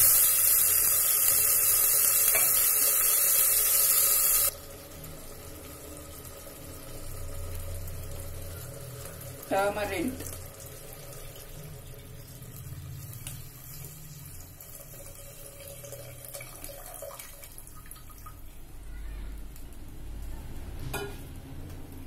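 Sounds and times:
liquid pouring and splashing: 0:01.9 - 0:18.5.

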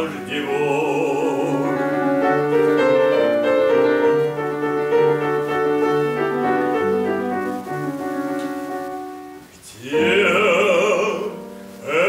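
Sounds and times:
slow piano chords: 0:00.0 - 0:12.0.

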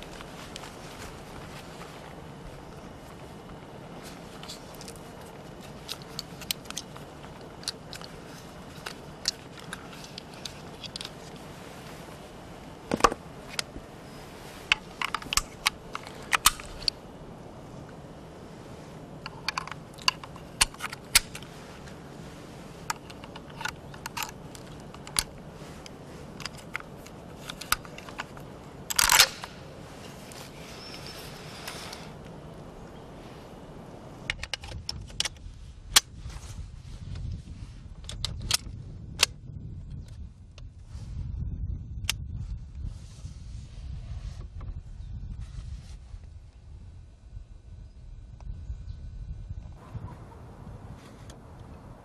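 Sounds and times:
rifle cartridges clicking: 0:05.8 - 0:11.4, 0:22.8 - 0:29.6
rifle clattering: 0:14.6 - 0:17.0, 0:19.3 - 0:21.9, 0:22.8 - 0:29.6.

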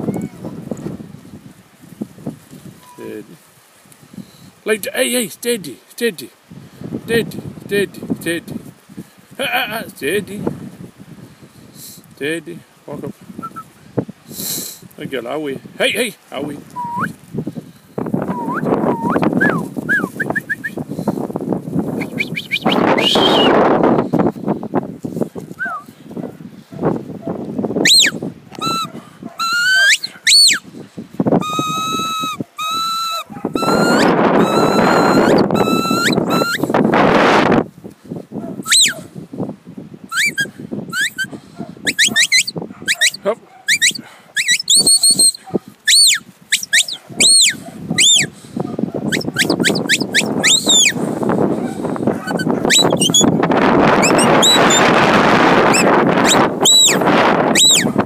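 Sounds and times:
wind on microphone: 0:00.0 - 0:04.7, 0:06.4 - 0:58.0
whistled commands: 0:13.4 - 0:13.7, 0:16.8 - 0:17.2, 0:18.3 - 0:20.8, 0:22.0 - 0:23.6, 0:25.6 - 0:25.9, 0:27.8 - 0:30.6, 0:31.4 - 0:36.7, 0:38.7 - 0:39.0, 0:40.1 - 0:41.3, 0:41.9 - 0:48.3, 0:49.1 - 0:51.0, 0:52.7 - 0:53.3, 0:54.0 - 0:54.9, 0:55.7 - 0:57.9
short high whistled notes: 0:41.9 - 0:42.5, 0:43.7 - 0:48.3.

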